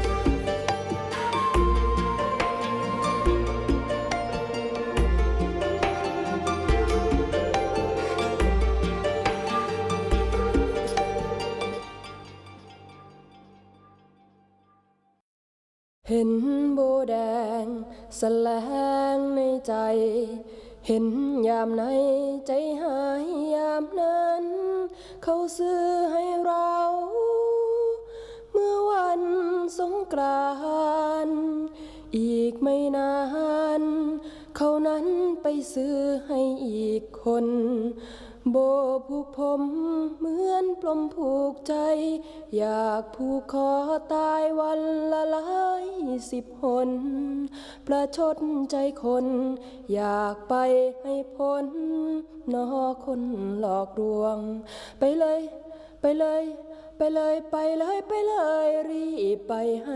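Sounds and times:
woman singing: 0.0 - 12.1, 16.1 - 59.9.

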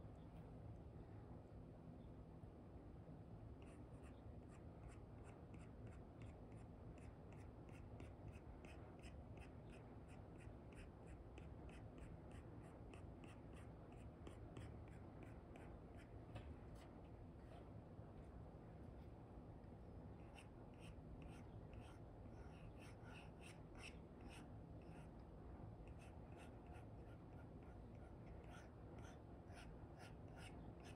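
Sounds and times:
stylus scratching on screen: 20.2 - 25.1.

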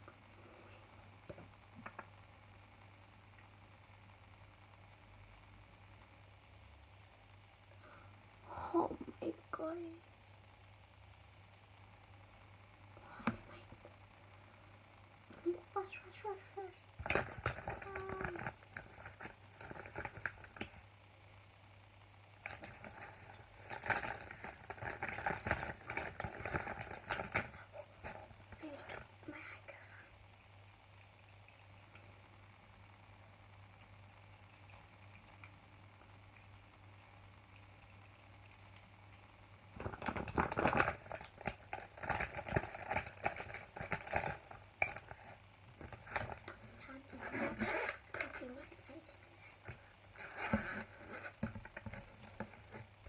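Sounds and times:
makeup items clicking and rattling: 39.8 - 46.8.

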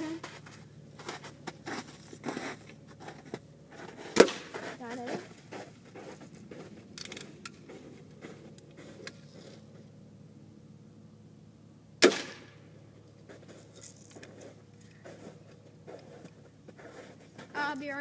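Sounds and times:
faint clicks and rustles: 0.0 - 10.0, 13.0 - 18.0
bb gun shot: 4.2 - 4.5, 12.0 - 12.6.

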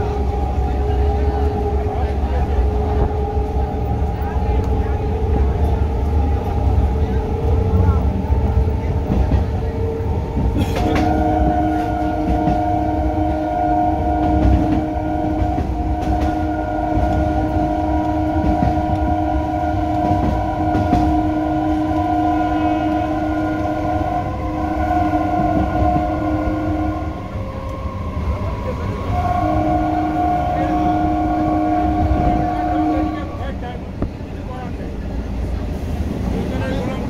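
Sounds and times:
train horn multi-tone blast: 0.0 - 8.7, 9.7 - 33.8
crowded platform rumble and knocking: 0.0 - 12.9, 27.2 - 37.0.

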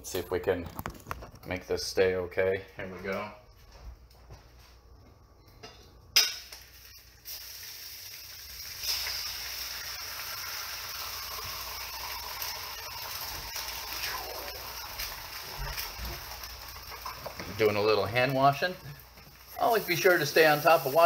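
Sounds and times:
food sizzling in frying pan: 6.2 - 21.0.

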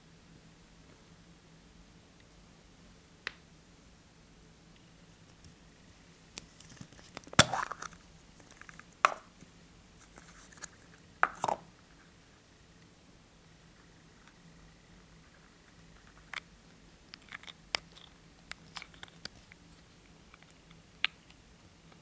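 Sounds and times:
plastic capsule clicks and rattles: 17.1 - 19.4.

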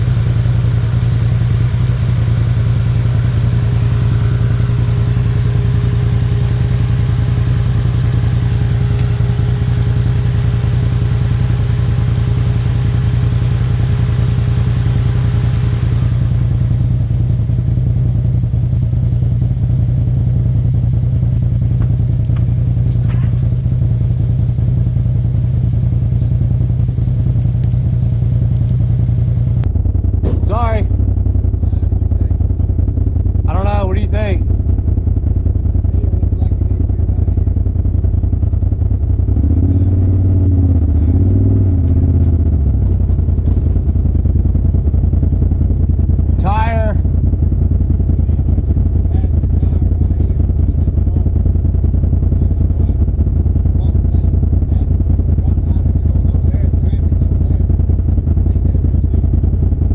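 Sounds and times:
vehicle engine low drone: 0.0 - 59.9.

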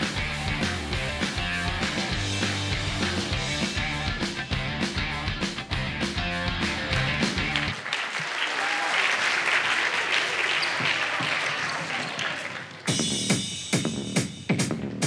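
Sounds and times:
audience applauding: 6.9 - 13.1.

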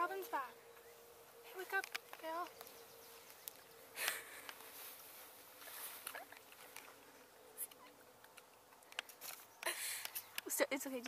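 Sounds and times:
people rustling and scuffing: 0.0 - 7.8
faint steady hum: 0.0 - 10.8.

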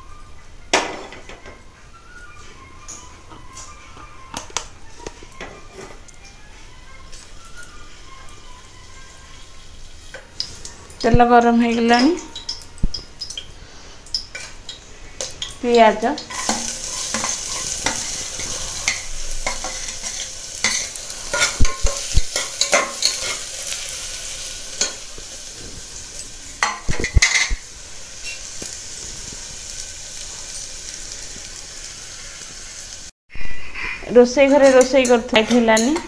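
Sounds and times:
onion sizzling in hot oil: 6.4 - 33.1, 34.1 - 36.0
spatula scraping a metal pot: 16.3 - 23.5.

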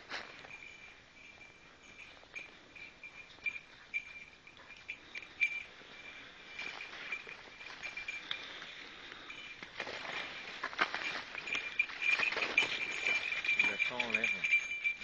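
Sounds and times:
dog collar bell tinkling: 0.0 - 15.0
footsteps in dry leaves: 5.4 - 14.2.

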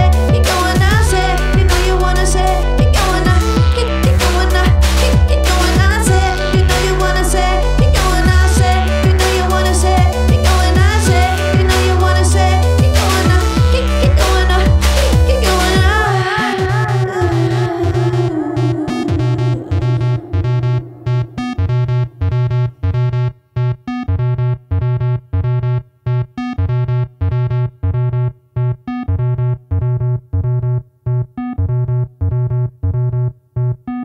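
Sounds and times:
synthesizer chord stabs: 0.0 - 23.1
pulsing synth bass: 0.0 - 34.0.

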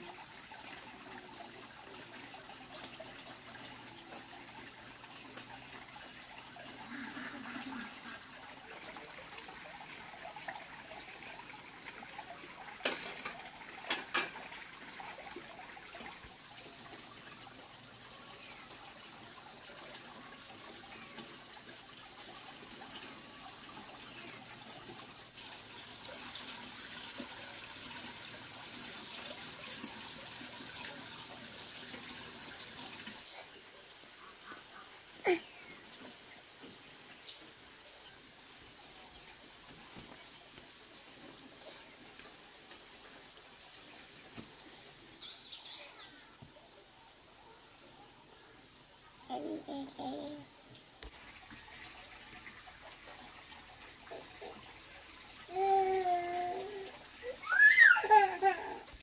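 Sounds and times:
oil sizzling in a wok: 12.4 - 14.8, 55.4 - 58.1.

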